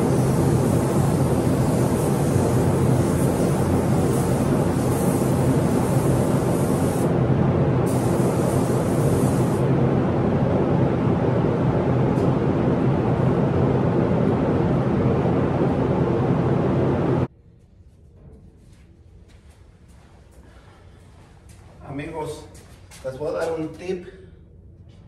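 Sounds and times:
spray gun air hissing: 0.0s - 7.2s, 7.8s - 9.7s
ventilation fans humming: 0.0s - 25.0s.

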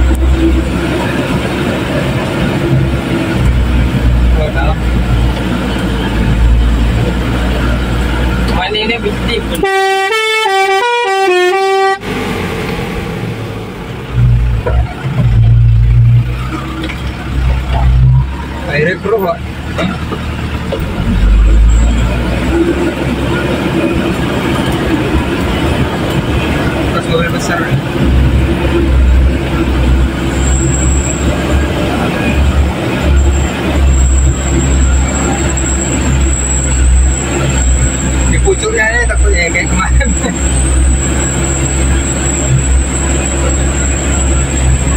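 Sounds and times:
truck engine droning: 0.0s - 44.9s
musical horn playing a tune: 9.6s - 12.0s.

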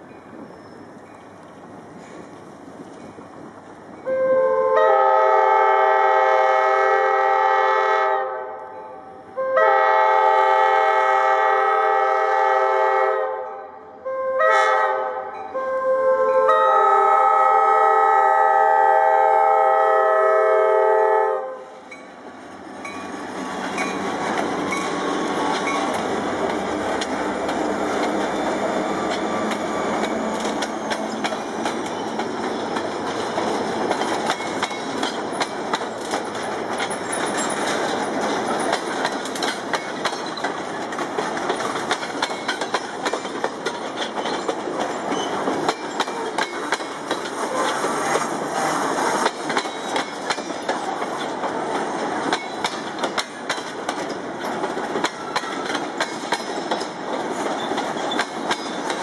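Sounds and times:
diesel locomotive engine drone: 0.0s - 59.0s
train wheels rumbling on rail: 0.0s - 59.0s
wheels clacking over track: 22.4s - 59.0s.

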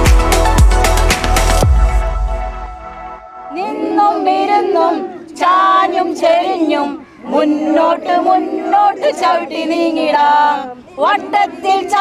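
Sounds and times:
women singing in unison: 3.4s - 12.0s.

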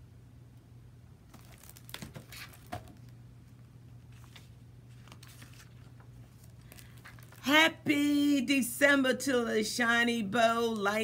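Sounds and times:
low steady hum: 0.0s - 11.0s
paper pages rustling: 1.3s - 3.2s, 4.0s - 7.6s.

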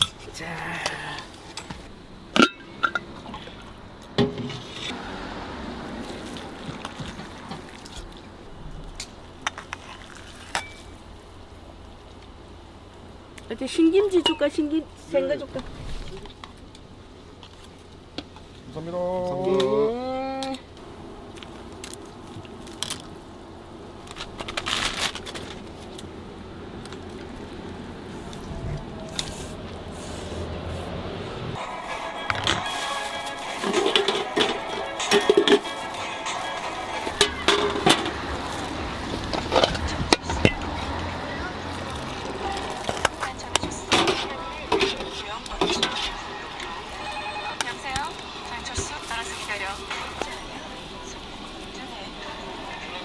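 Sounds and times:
steady background noise: 0.0s - 53.0s
metal bowls and utensils clinking: 2.4s - 5.0s, 9.4s - 10.9s, 31.6s - 41.0s, 41.6s - 48.9s
crinkling rustle: 21.3s - 26.2s, 48.7s - 51.9s
wooden skewers clattering: 32.2s - 41.0s, 41.8s - 46.2s.

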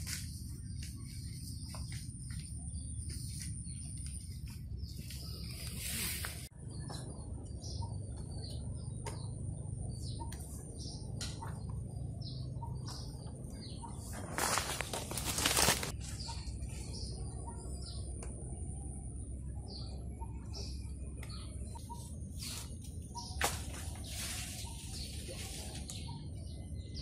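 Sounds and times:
small birds chirping: 0.0s - 27.0s
palm fronds rustling: 3.1s - 6.5s, 14.0s - 16.8s, 22.4s - 26.1s.

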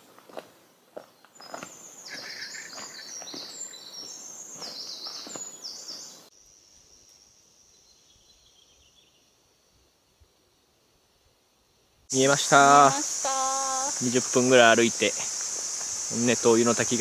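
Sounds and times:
footsteps on dirt trail: 0.0s - 6.2s
faint high forest hum: 0.0s - 17.0s.

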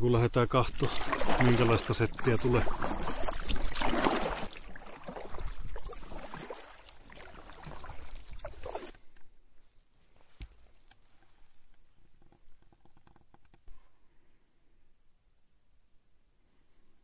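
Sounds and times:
paddle splashes: 0.6s - 9.3s
paddle knocking against hull: 0.8s - 6.4s.

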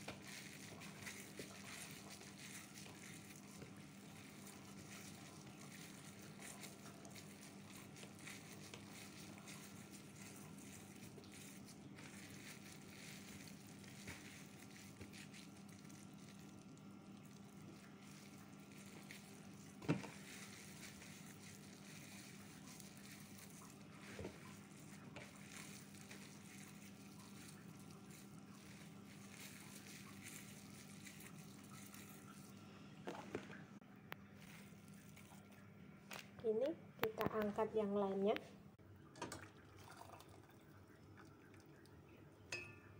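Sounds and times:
hands tearing wet gluten: 0.0s - 32.6s.

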